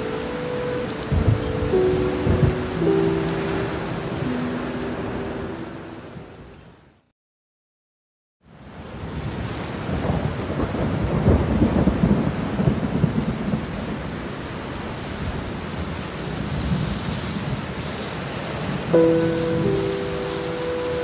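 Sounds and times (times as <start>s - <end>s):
thunder rumbling: 0.0s - 5.1s, 9.8s - 14.2s
steady rain: 0.0s - 7.0s, 8.4s - 21.0s.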